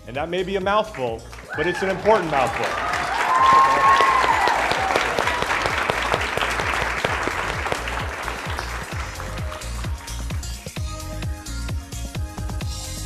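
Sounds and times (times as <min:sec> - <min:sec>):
background music with low beat: 0:00.0 - 0:13.0
crowd applauding: 0:00.8 - 0:10.9
high cheer: 0:01.4 - 0:10.6.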